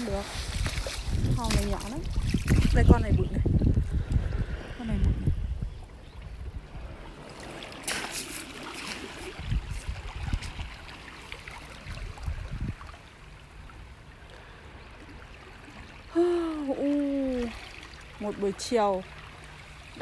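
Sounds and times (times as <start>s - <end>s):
seawater lapping over pebbles: 0.0s - 3.3s, 6.8s - 16.1s, 16.9s - 20.0s.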